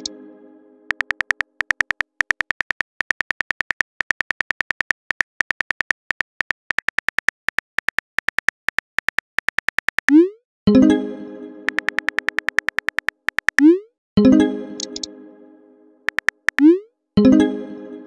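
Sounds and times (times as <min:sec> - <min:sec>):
phone keyboard typing clicks: 0:00.9 - 0:10.2, 0:11.7 - 0:13.7, 0:14.8 - 0:15.1, 0:16.1 - 0:16.7.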